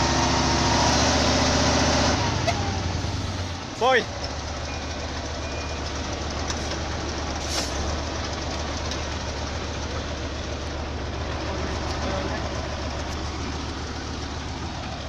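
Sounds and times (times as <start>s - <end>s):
truck diesel engine running: 0.0s - 15.0s
brief hiss: 7.4s - 7.8s.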